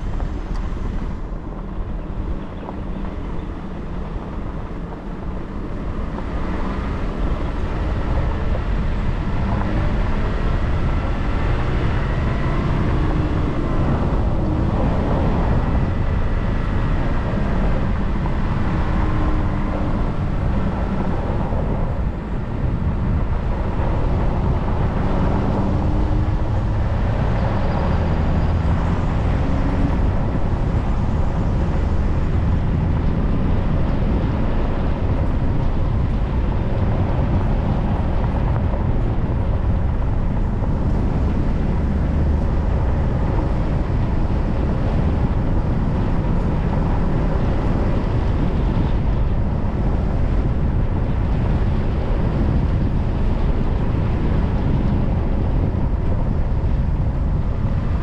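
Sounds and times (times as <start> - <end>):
car engine: 0.0 - 58.0.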